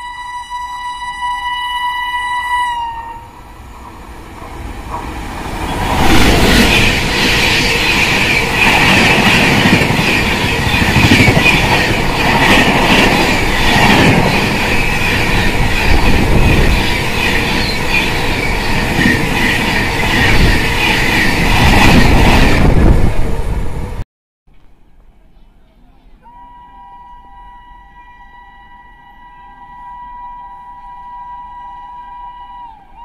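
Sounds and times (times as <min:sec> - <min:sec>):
train wheels clattering: 0:04.3 - 0:22.6.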